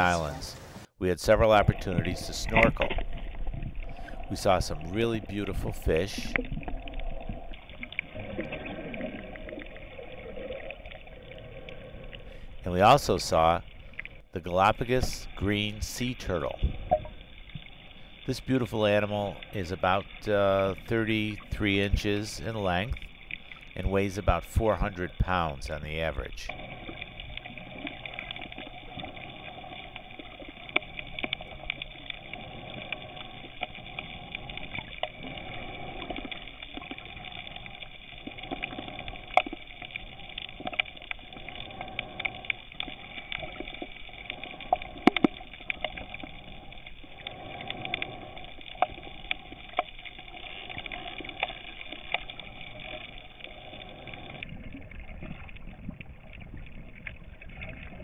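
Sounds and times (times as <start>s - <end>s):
clicks and crackles: 26.5s - 58.0s.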